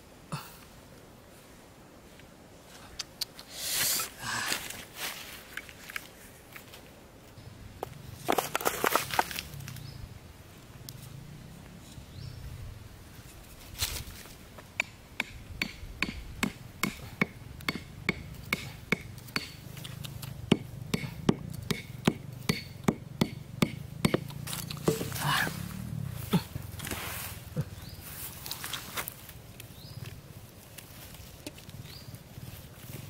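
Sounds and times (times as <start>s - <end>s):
hatchet knocking bamboo stake: 14.8s - 19.6s, 20.5s - 25.2s
short rustle: 26.8s - 29.4s.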